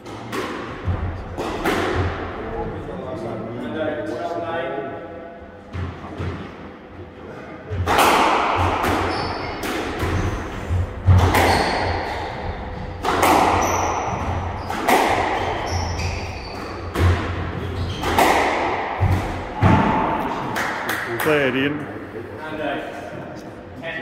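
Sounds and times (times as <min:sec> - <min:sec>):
squash ball hitting rackets and walls: 0:00.0 - 0:02.6, 0:07.7 - 0:21.1
shoes squeaking on wooden floor: 0:13.6 - 0:16.9, 0:17.5 - 0:18.2.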